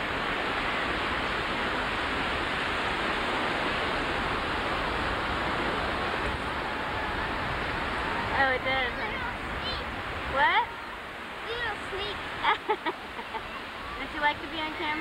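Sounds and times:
ocean surf breaking: 0:00.0 - 0:15.0.

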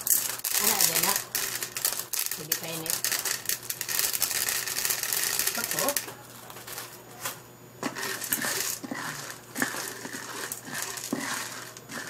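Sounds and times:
popcorn kernels rattling in pot: 0:00.0 - 0:06.9, 0:07.8 - 0:12.0.

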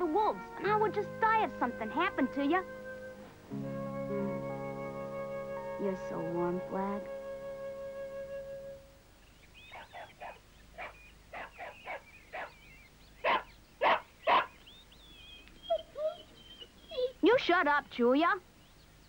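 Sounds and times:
hound dog barking: 0:09.7 - 0:12.6, 0:13.2 - 0:14.6.

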